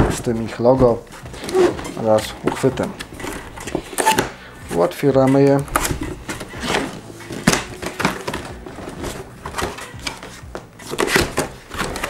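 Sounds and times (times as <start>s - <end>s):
cardboard box lid opening: 5.2s - 12.0s.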